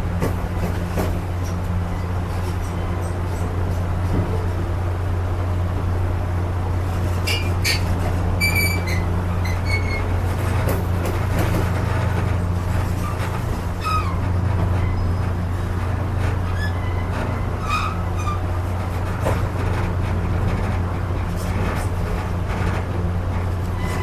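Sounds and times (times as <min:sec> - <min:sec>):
train car rumbling on track: 0:00.0 - 0:24.0
high metallic squeaks: 0:07.3 - 0:10.1, 0:13.8 - 0:15.2, 0:16.5 - 0:18.4.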